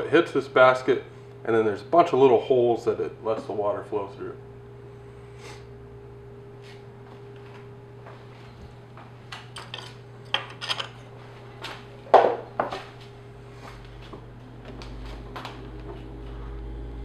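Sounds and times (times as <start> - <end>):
steady low hum: 0.0 - 17.0
metal clinks and knocks: 9.6 - 11.0.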